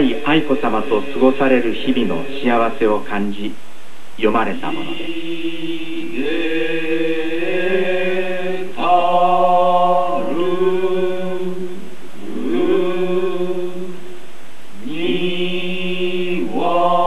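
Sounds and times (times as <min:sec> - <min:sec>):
men chanting: 0:04.4 - 0:14.2, 0:14.8 - 0:17.0.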